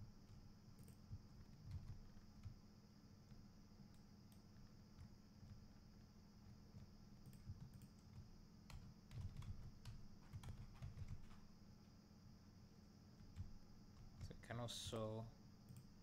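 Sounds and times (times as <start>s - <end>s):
low steady hum: 0.0s - 16.0s
computer keyboard and mouse clicks: 0.2s - 2.6s, 3.3s - 5.7s, 6.4s - 11.5s, 13.2s - 14.4s.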